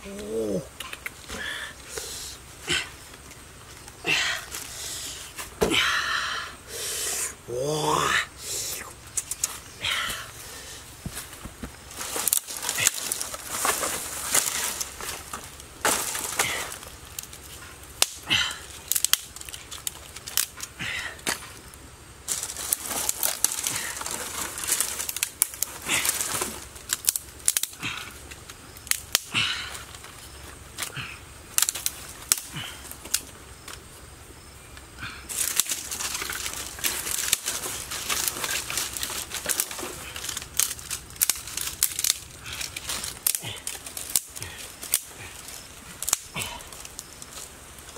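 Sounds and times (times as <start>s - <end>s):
dry twigs snapping: 9.0s - 10.3s, 10.9s - 33.9s, 34.7s - 47.9s
dry brush rustling: 10.3s - 17.8s, 22.2s - 27.1s, 35.3s - 47.9s.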